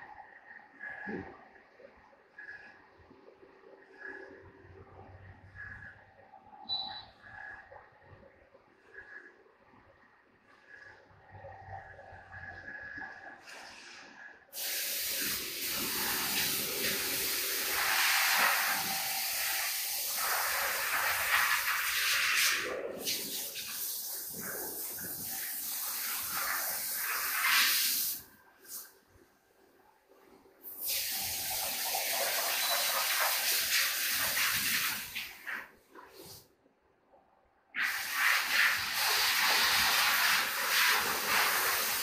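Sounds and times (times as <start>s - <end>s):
compressed air blow gun hissing: 14.6s - 28.9s, 30.7s - 35.6s, 37.8s - 42.0s.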